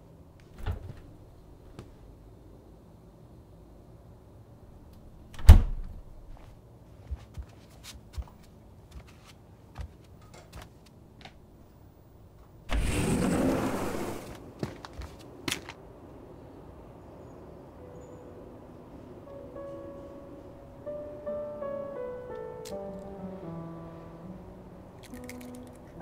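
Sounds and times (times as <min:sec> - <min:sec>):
egg carton and bowl clicking: 0:25.0 - 0:25.8.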